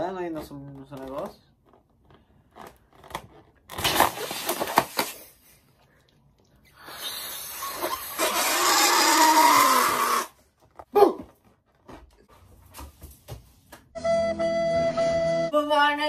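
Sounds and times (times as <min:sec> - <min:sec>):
rubber balloon crackling: 0:00.0 - 0:05.5, 0:06.8 - 0:10.9
breath blown into balloon: 0:06.6 - 0:10.4.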